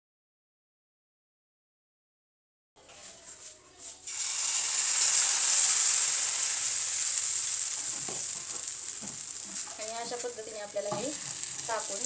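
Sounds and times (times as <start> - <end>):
batter sizzling on hot griddle: 3.0 - 12.0.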